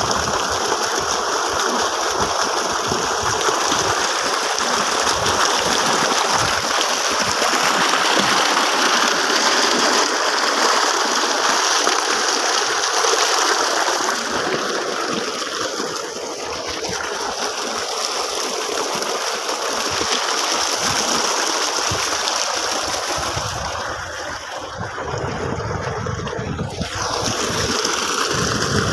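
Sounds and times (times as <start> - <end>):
water gushing from a pipe: 0.0 - 28.9.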